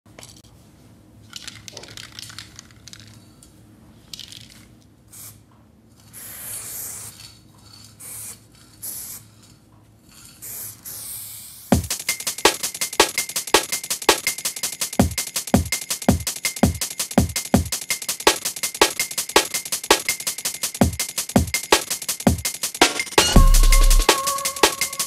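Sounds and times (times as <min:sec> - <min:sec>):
spray-paint can hissing: 0:05.1 - 0:05.4, 0:06.0 - 0:07.4, 0:08.0 - 0:09.4, 0:10.2 - 0:22.8
drum and bass beat: 0:11.7 - 0:25.0.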